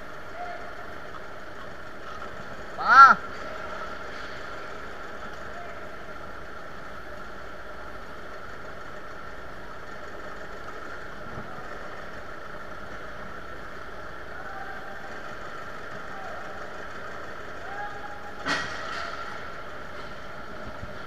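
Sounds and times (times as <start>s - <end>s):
high steady whine: 0.0s - 21.0s
tow tractor engine hum: 0.0s - 21.0s.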